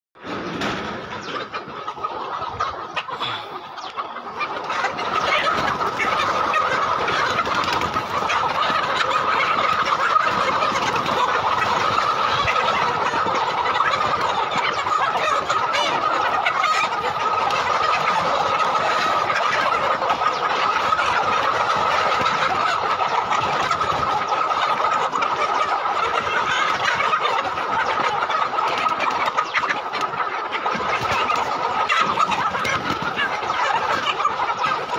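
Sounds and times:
flock of hens clucking: 0.2 - 34.9.

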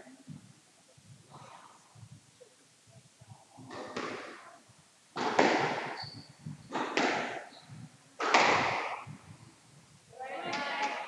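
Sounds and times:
squash ball hit by racket: 3.7 - 4.5, 5.2 - 6.0, 6.7 - 7.5, 8.2 - 9.2
court shoes squeaking: 5.3 - 7.8.

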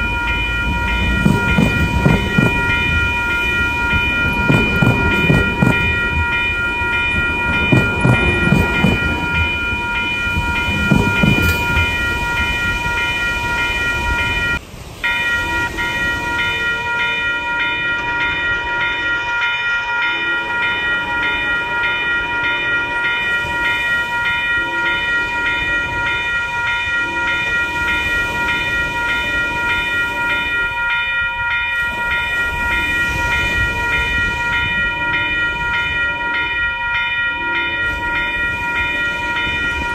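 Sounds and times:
crossing warning bell ringing: 0.0 - 39.9
train rumbling on rails: 0.0 - 39.9
train horn blasts: 26.8 - 27.6.

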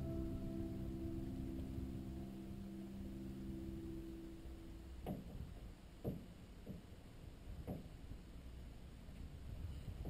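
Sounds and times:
soundtrack chord: 0.0 - 5.0.

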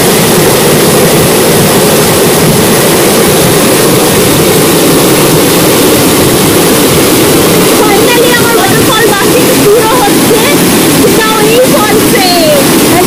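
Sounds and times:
waterfall pouring into pool: 0.0 - 13.0.

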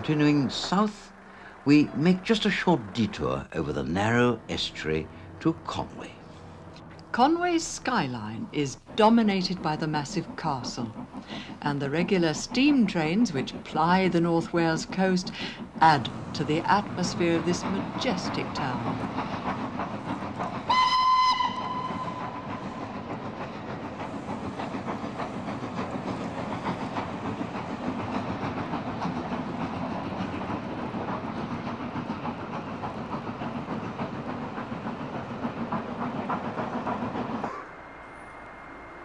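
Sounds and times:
rhythmic train running noise: 0.0 - 39.0
steam locomotive whistle: 20.7 - 22.5.

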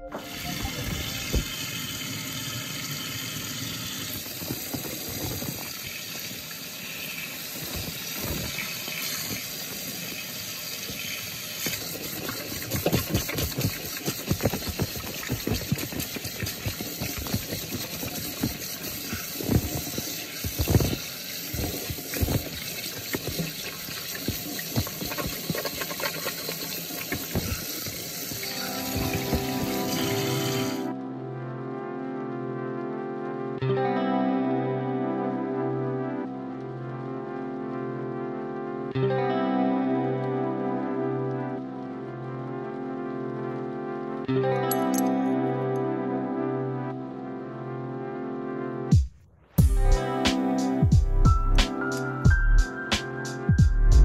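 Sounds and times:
tap water running into sink: 0.1 - 30.9
hands rinsed under water splashing: 10.8 - 30.9.

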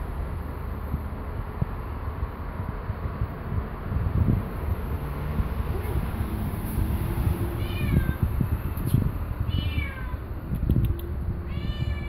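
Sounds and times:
cat meowing: 7.6 - 8.4, 9.5 - 10.3, 11.4 - 12.0.

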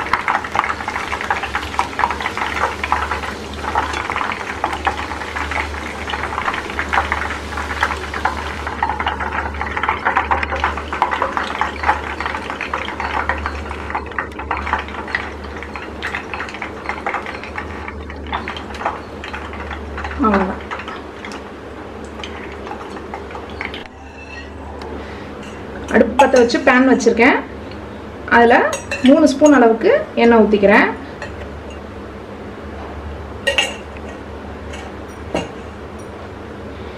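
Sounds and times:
oil sizzling and crackling: 0.0 - 24.4.

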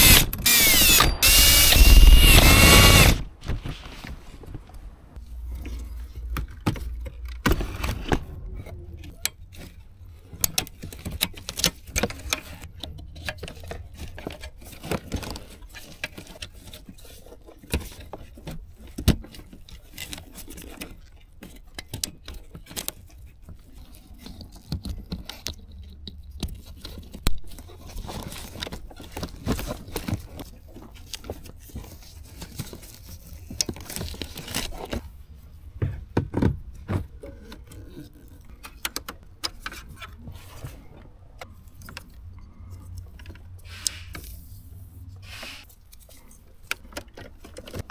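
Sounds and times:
plastic parts clicking and rattling: 9.0 - 35.2, 36.3 - 40.2, 45.8 - 47.9.

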